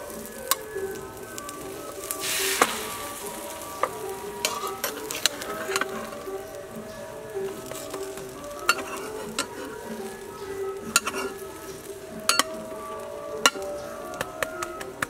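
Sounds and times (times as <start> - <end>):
background music: 0.0 - 15.0
egg sizzling: 0.0 - 15.0
metal spatula scraping pan: 2.0 - 6.4, 7.4 - 10.2, 10.8 - 12.6.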